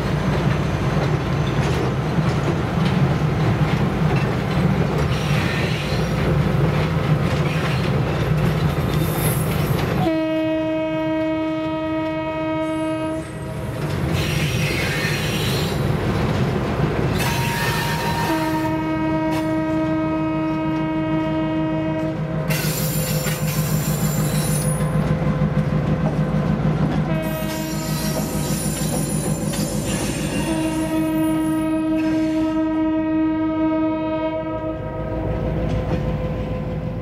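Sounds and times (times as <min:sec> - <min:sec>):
locomotive air horn: 0:10.0 - 0:13.6, 0:17.2 - 0:22.2, 0:27.1 - 0:28.7, 0:30.2 - 0:35.3.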